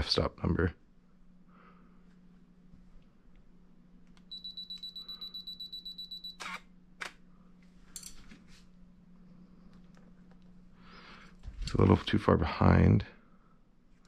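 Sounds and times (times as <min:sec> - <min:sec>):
camera self-timer beeping: 0:04.3 - 0:06.7
camera shutter clicks: 0:06.4 - 0:07.2.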